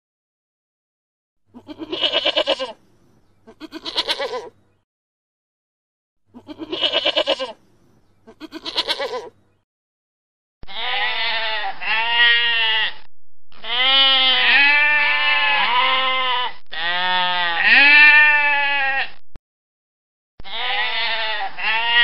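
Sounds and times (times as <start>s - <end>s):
goat bleating: 1.5s - 2.8s, 3.4s - 4.6s, 6.3s - 7.6s, 8.2s - 9.4s, 10.6s - 19.2s, 20.4s - 22.0s.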